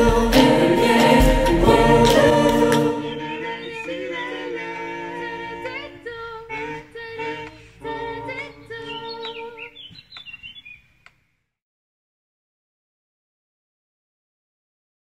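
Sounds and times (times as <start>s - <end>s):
choir singing a cappella: 0.0s - 9.8s
short high rising calls: 1.0s - 5.4s.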